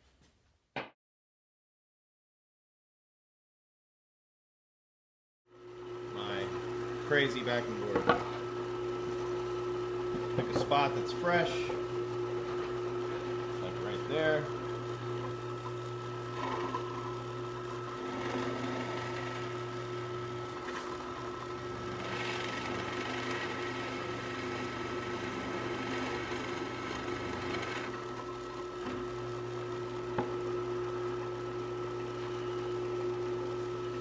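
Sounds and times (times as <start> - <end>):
drill press motor hum: 5.6 - 34.0
drill bit boring into plywood: 9.2 - 34.0.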